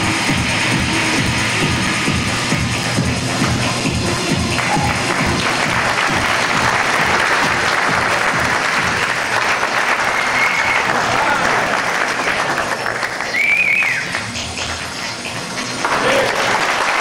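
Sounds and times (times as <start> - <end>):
stage music with low beat: 0.0 - 10.9
audience applauding: 3.4 - 17.0.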